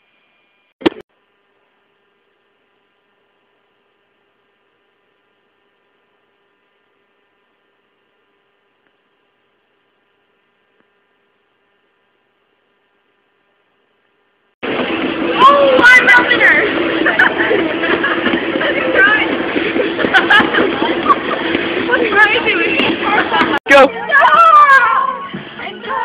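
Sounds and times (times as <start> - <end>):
faint electrical hum with whining tones: 0.0 - 14.6.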